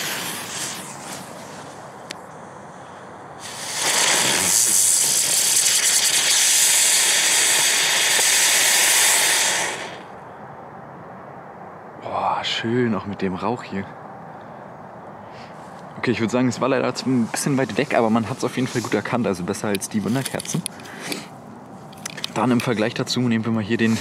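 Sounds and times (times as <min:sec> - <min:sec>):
ground-spinner firework hissing: 0:00.0 - 0:02.0, 0:02.8 - 0:10.1
fuse sizzling: 0:03.4 - 0:10.1.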